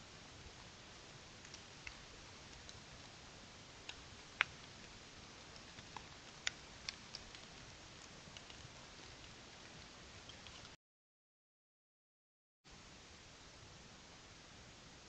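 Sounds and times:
faint steady hiss: 0:00.0 - 0:10.8, 0:12.7 - 0:15.0
small sharp ticks: 0:01.4 - 0:03.2, 0:03.8 - 0:10.8.

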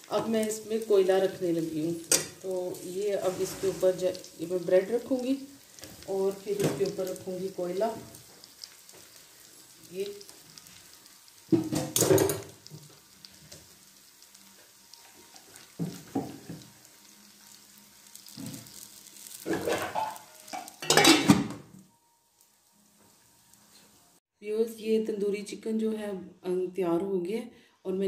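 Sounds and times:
metal pot clattering: 0:11.5 - 0:12.6, 0:19.4 - 0:21.7
metal lid on pot: 0:19.4 - 0:21.6.

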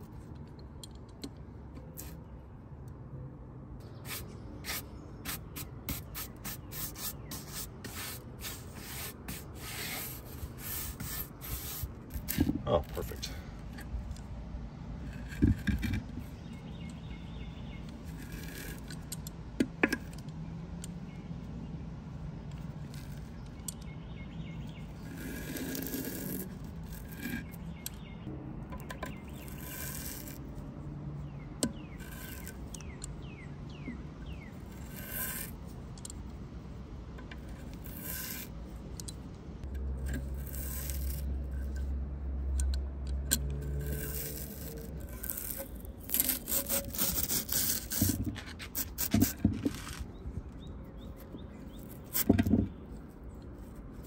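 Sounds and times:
metal tool scraping gasket: 0:43.3 - 0:50.1.

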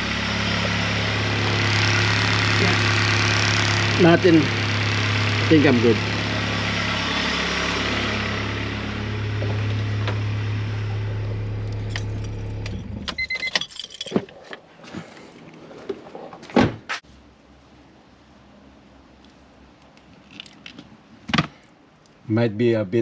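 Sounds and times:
car engine idling: 0:00.0 - 0:13.1
keys jingling and clicking: 0:13.2 - 0:14.5.

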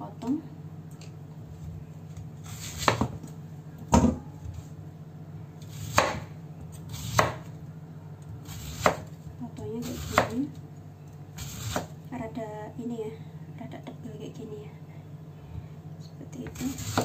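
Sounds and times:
knife chopping on wooden board: 0:02.5 - 0:03.2, 0:05.7 - 0:06.3, 0:06.9 - 0:07.5, 0:08.4 - 0:09.1, 0:09.9 - 0:10.4, 0:11.4 - 0:11.9, 0:16.5 - 0:17.0.

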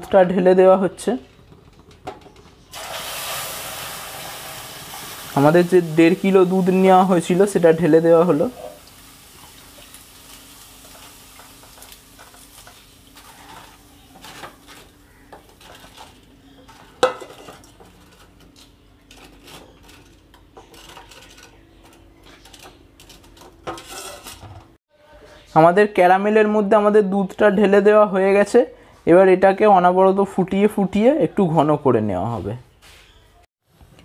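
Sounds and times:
spatula scraping pan: 0:10.9 - 0:24.8.

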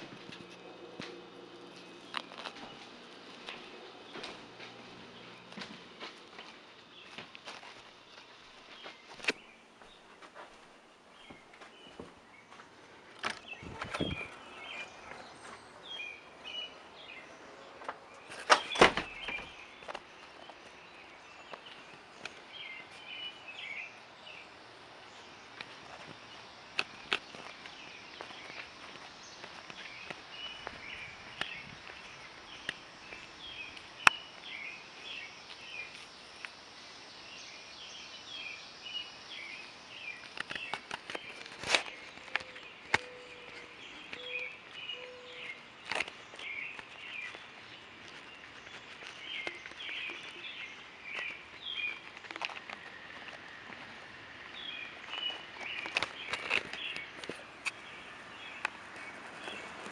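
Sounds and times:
footsteps: 0:00.0 - 0:16.6, 0:25.5 - 0:36.5
small birds chirping: 0:00.0 - 0:59.9.

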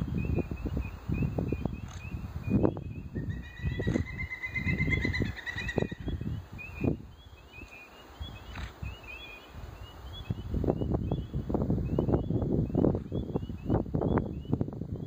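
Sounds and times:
low rumble on microphone: 0:09.8 - 0:15.0.

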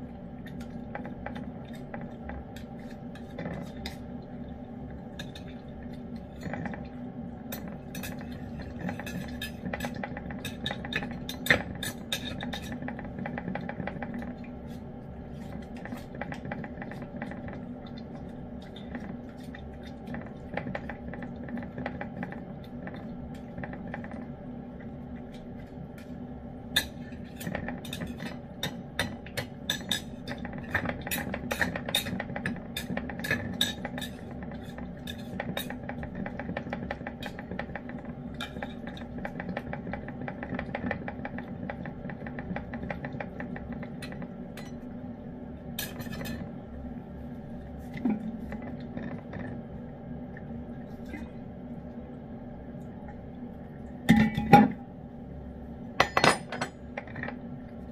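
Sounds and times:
steady low hum: 0:00.0 - 0:57.9
clinks against dish: 0:56.0 - 0:57.3.

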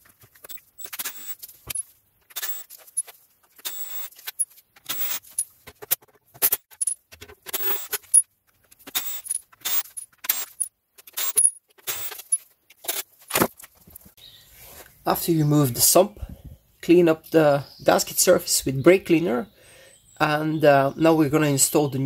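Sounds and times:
ratchet clicking: 0:00.8 - 0:05.4, 0:08.9 - 0:13.0.

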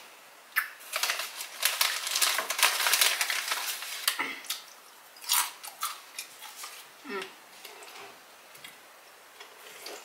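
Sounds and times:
crisp bag crinkling: 0:00.8 - 0:04.6.

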